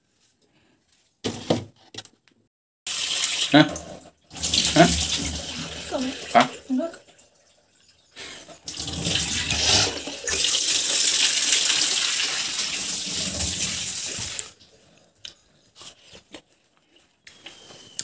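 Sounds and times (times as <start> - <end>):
tap water running into sink: 2.9 - 14.7.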